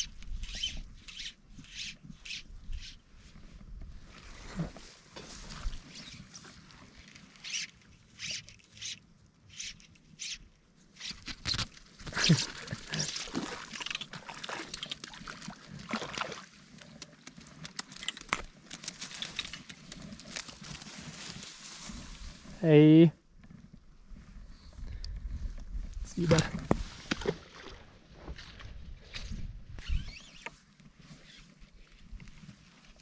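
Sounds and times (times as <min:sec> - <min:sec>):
grass rustling: 0:00.0 - 0:10.3, 0:11.0 - 0:24.4.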